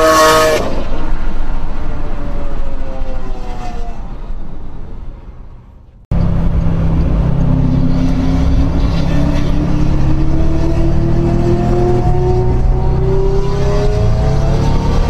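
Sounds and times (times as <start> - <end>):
engine and tyre rumble: 0.0 - 15.0
car engine accelerating: 6.1 - 15.0.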